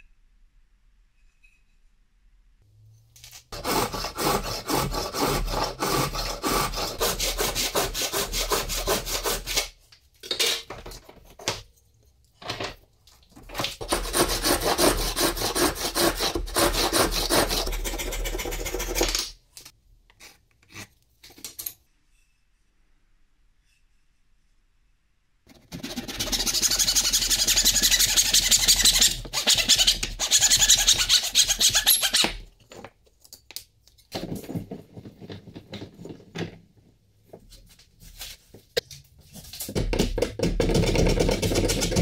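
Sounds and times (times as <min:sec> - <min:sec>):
handsaw cutting wood: 0:03.6 - 0:09.7, 0:13.8 - 0:19.0, 0:25.6 - 0:32.3.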